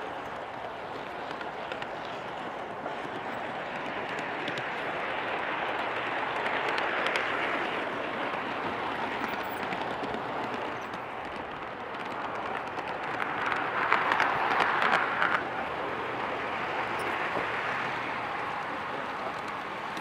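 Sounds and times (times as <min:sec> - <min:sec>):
model train wheels rushing on rails: 0:00.0 - 0:20.0
faint clicks: 0:18.4 - 0:20.0.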